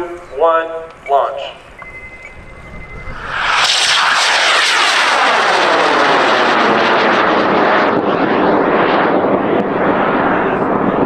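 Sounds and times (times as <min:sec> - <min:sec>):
rocket motor roaring: 0:02.5 - 0:11.0.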